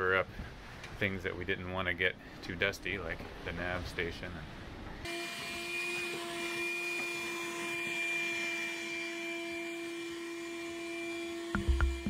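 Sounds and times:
vacuum cleaner whining: 5.1 - 12.0
music with a beat: 11.6 - 12.0.

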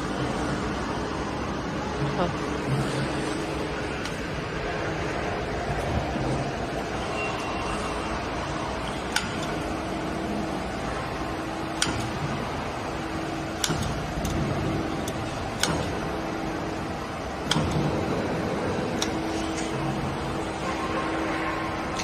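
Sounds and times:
faint hum: 0.0 - 22.0
machine-shop lathes running: 0.0 - 22.0
sharp metallic clicks: 9.1 - 9.6, 11.8 - 12.2, 13.6 - 16.1, 17.4 - 18.0.

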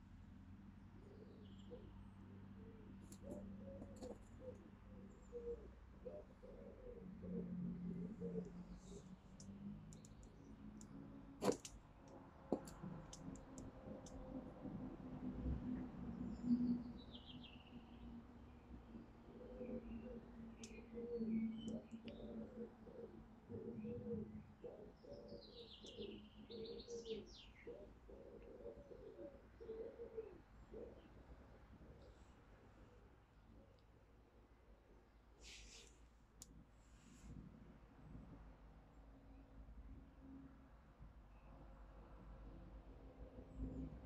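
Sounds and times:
songbird chirping: 1.0 - 14.2, 16.2 - 31.2
doves cooing: 2.7 - 9.0, 19.2 - 31.2.

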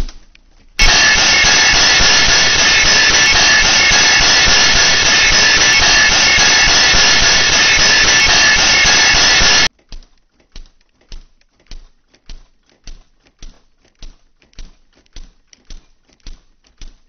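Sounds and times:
loud steady rushing noise: 0.8 - 9.7.

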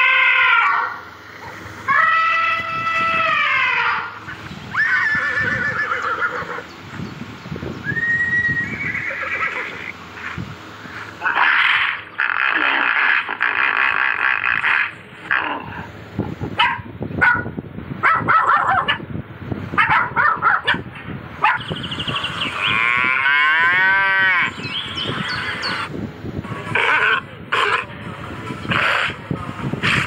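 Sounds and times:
long falling animal call: 0.0 - 1.0, 1.9 - 6.6, 7.9 - 10.0.

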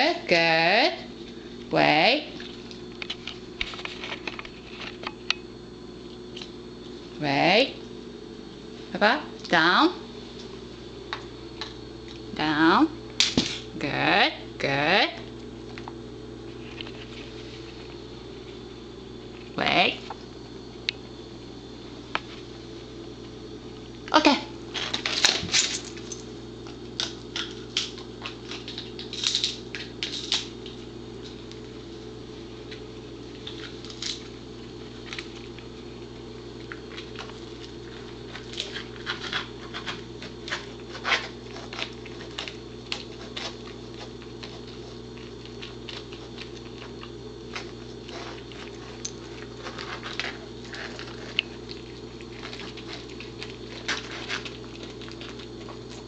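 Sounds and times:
steady low hum: 0.0 - 56.0
dog chewing and crunching: 24.7 - 31.8, 32.5 - 56.0.

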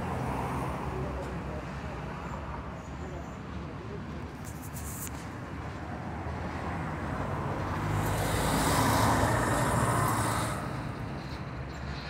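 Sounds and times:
vehicle passing by: 7.4 - 11.3.

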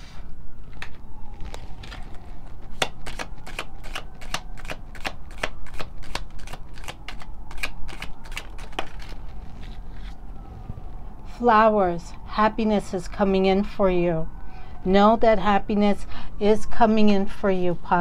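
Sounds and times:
cards being shuffled: 0.7 - 10.2.

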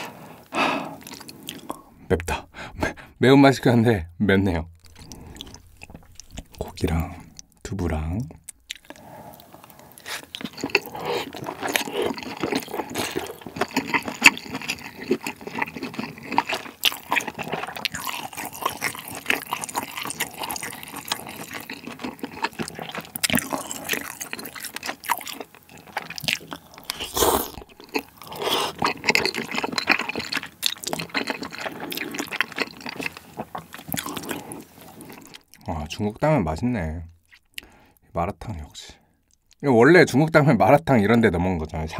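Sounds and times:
wet chewing and slurping: 0.0 - 2.0, 4.8 - 7.6, 8.4 - 35.6.

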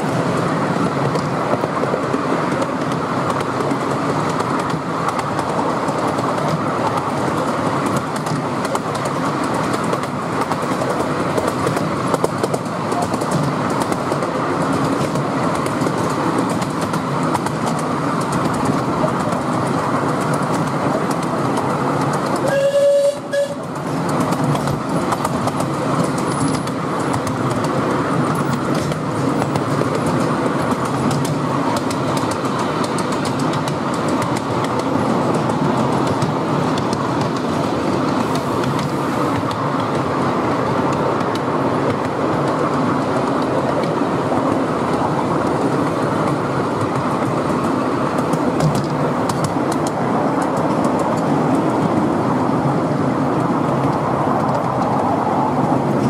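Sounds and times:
wheels clattering on track: 0.0 - 56.0
steam locomotive whistle: 22.4 - 23.7.

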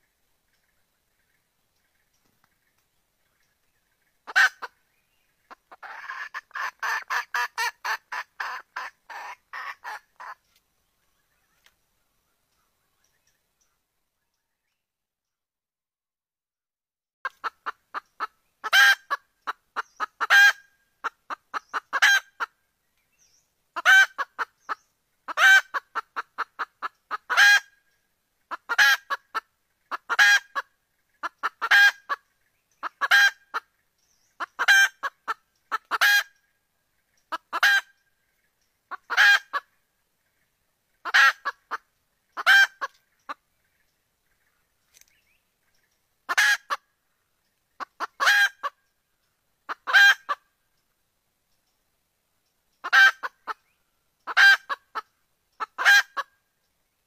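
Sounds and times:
hen clucking calls: 3.4 - 10.6, 17.2 - 22.6, 23.8 - 27.8, 28.4 - 47.0, 47.7 - 48.9, 49.6 - 50.5, 52.8 - 56.4.

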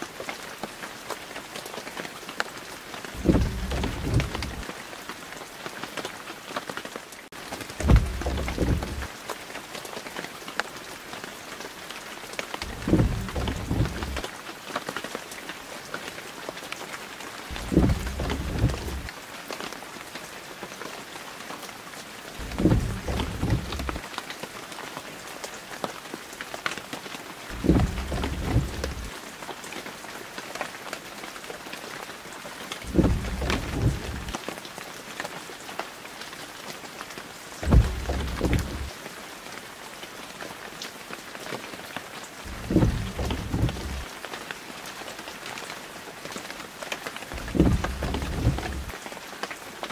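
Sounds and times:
rain hiss: 0.0 - 49.9
low rumbling thud: 3.2 - 4.6, 7.8 - 9.1, 12.6 - 14.2, 17.5 - 19.1, 22.4 - 24.0, 27.5 - 29.1, 32.8 - 34.4, 37.6 - 38.9, 42.5 - 44.1, 47.4 - 48.9.

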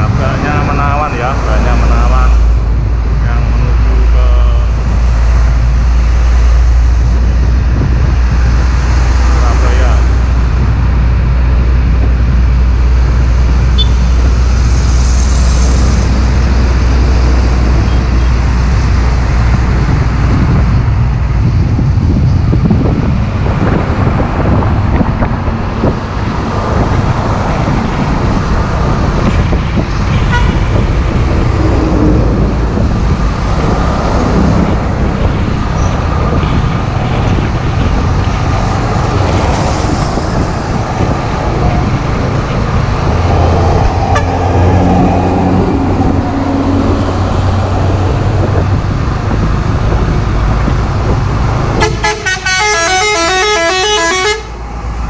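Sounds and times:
truck engines running: 0.0 - 55.0
tyre and wind noise: 4.7 - 55.0
vehicle horn multi-note pattern: 13.8 - 14.1, 30.2 - 30.6, 51.8 - 54.6.

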